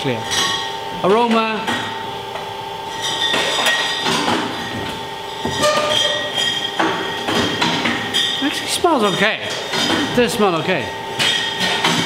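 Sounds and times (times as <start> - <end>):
glass bottles clinking: 2.9 - 4.8, 5.4 - 8.4.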